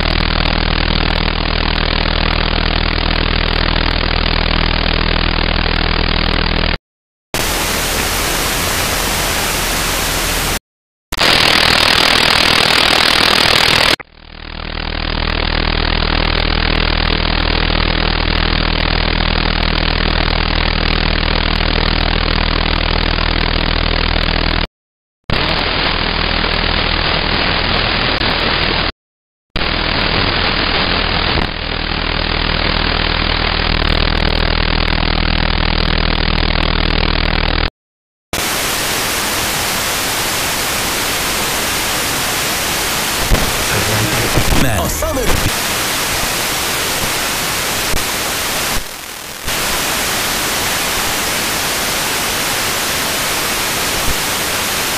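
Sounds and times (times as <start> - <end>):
low buzzing hum: 0.0 - 6.8
radio static hiss: 7.4 - 10.6, 38.4 - 54.9
wideband radio hiss: 7.4 - 10.6, 38.4 - 54.9.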